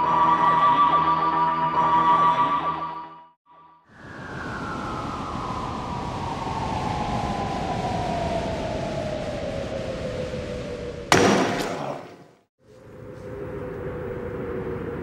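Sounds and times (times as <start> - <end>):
falling whistling tone: 3.9 - 11.6
rushing noise: 3.9 - 12.3.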